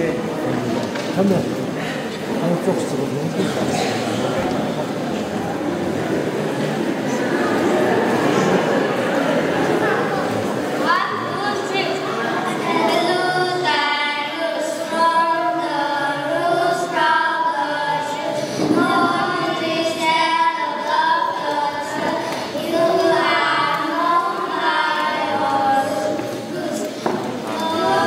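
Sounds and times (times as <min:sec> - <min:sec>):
children singing in unison: 0:07.7 - 0:28.0.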